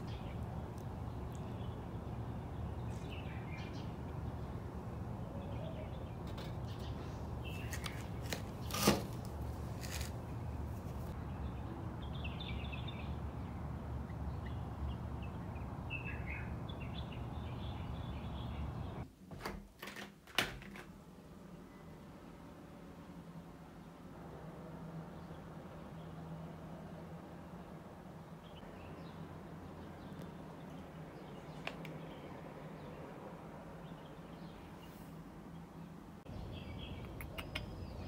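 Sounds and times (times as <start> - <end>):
small birds chirping: 0.0 - 19.0, 28.4 - 33.1, 33.8 - 38.0.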